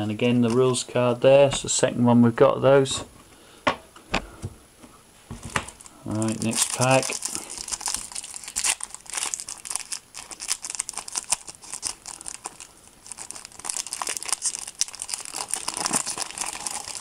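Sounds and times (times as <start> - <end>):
foil wrapper tearing and crinkling: 5.7 - 17.0.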